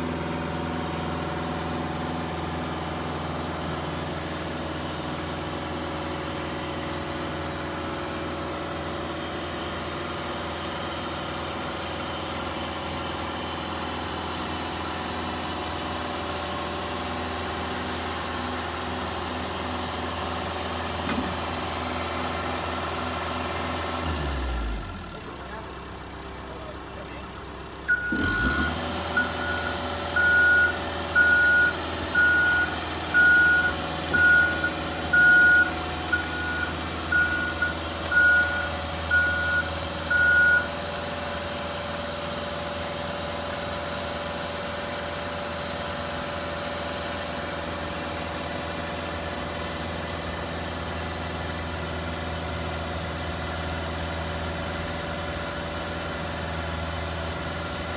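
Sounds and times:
excavator diesel engine running: 0.0s - 57.9s
motion alarm beeping: 27.9s - 40.7s.

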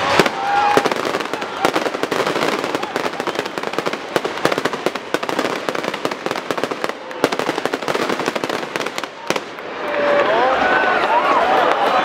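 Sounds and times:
fireworks pops and bangs: 0.0s - 9.8s.

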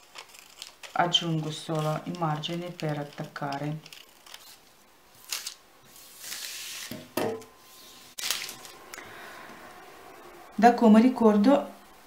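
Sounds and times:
paper rustling: 0.0s - 4.6s
scissors snipping paper: 0.0s - 4.6s.

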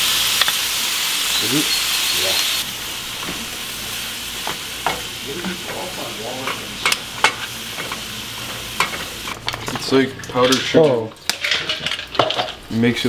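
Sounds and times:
apples sizzling in a pan: 0.0s - 13.0s
utensil clinking and scraping: 4.4s - 12.7s.

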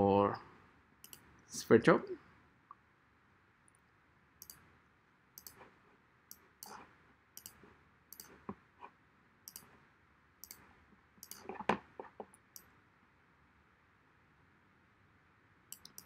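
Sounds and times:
computer mouse clicks: 1.0s - 1.3s, 4.4s - 4.6s, 5.4s - 5.7s, 7.4s - 8.5s, 9.5s - 9.7s, 10.4s - 10.6s, 11.2s - 12.7s, 15.7s - 16.0s.

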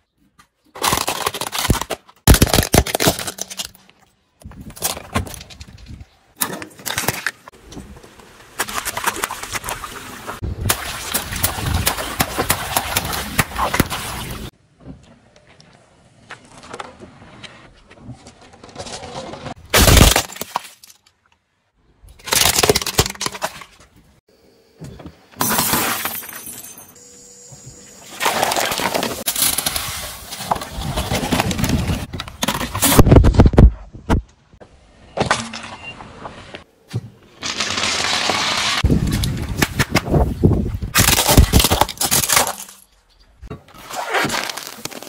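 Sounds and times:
car tyre crushing objects: 0.6s - 7.6s, 18.6s - 21.0s, 36.9s - 42.9s, 43.6s - 45.0s
plastic cracking and crunching: 0.7s - 4.0s, 22.2s - 23.6s, 40.9s - 42.8s.

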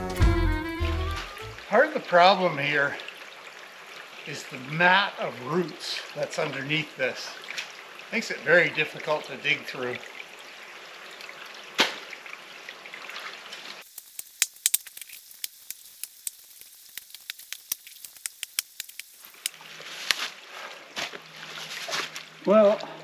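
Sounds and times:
shallow water trickling: 1.6s - 23.0s
sharp clicks and crackles: 13.8s - 19.6s.

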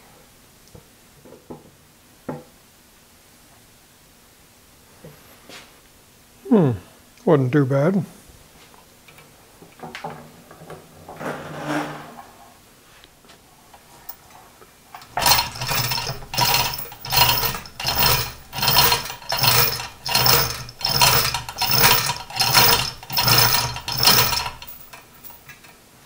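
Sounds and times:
hand chain being pulled: 14.9s - 25.8s
hoist chain and ratchet rattling: 15.0s - 25.8s.

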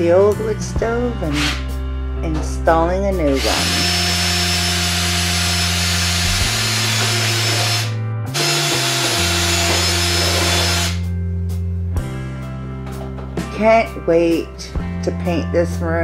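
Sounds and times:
background music: 0.0s - 16.0s
power drill running: 3.4s - 11.0s.

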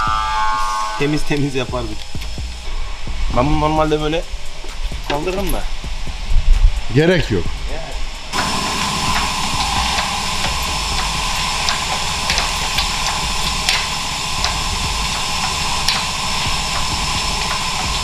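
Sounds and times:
mechanical running whine: 0.0s - 6.8s, 8.1s - 18.0s
sharp metal clicks: 8.3s - 18.0s.

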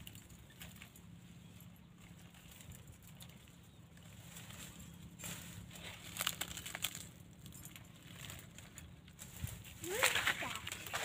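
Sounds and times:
leaves and branches rustling: 0.0s - 11.0s
branches snapping: 2.4s - 11.0s.

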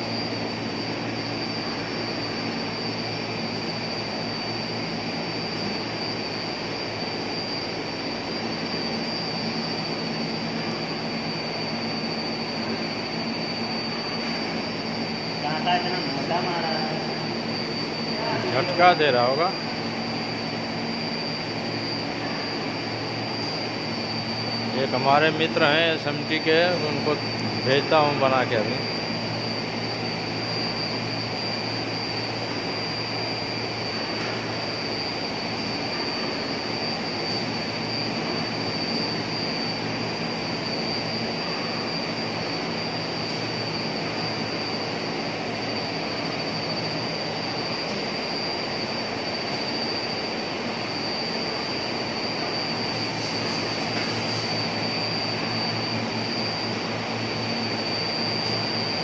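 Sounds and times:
machinery high whine: 0.0s - 59.0s
machinery low hum: 0.0s - 59.0s.

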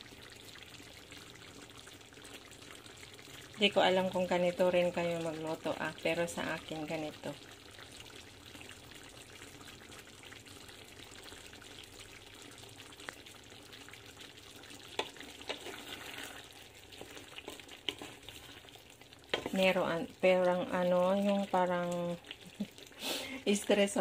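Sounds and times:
sauce simmering bubbling: 0.0s - 24.0s
wooden spatula stirring pan: 14.8s - 20.0s.

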